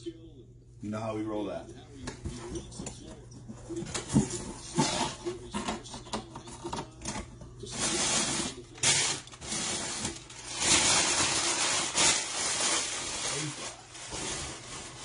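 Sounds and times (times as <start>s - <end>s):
packing paper crinkling: 4.0s - 15.0s.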